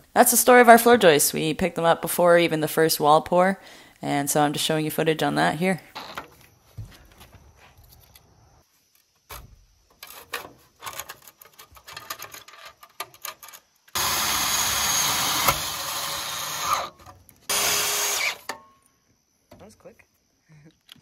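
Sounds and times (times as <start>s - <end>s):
cordless drill running: 14.0s - 16.9s, 17.5s - 18.5s.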